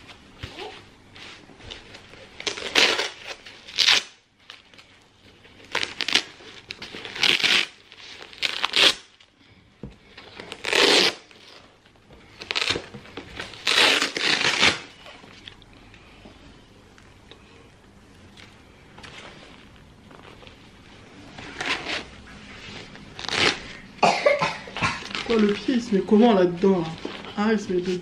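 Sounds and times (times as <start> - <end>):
ripping and rustling of packaging: 10.2 - 15.4, 23.0 - 23.8.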